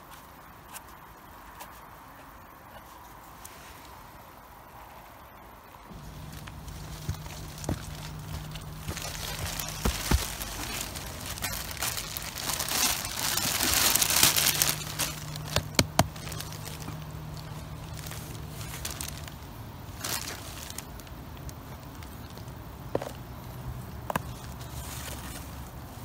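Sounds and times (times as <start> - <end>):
plastic bag crinkling: 5.9 - 22.4.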